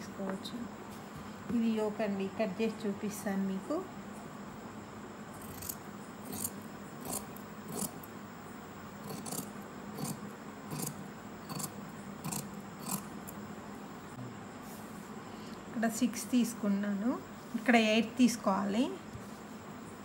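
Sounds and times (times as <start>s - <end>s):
scissors snipping cloth: 5.4s - 8.0s.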